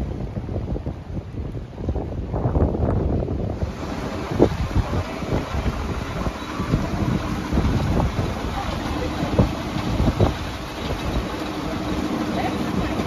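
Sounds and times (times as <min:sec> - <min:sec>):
wind buffeting microphone: 0:00.0 - 0:13.0
vehicle hum: 0:03.4 - 0:13.0.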